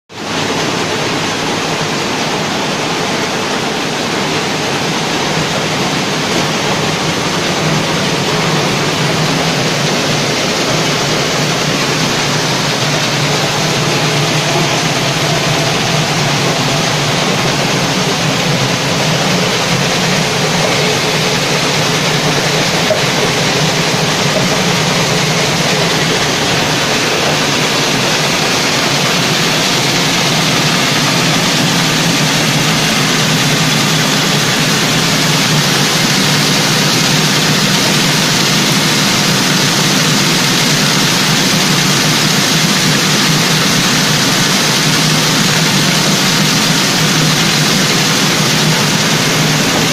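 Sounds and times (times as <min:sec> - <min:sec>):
low motor hum: 0:00.5 - 0:49.9.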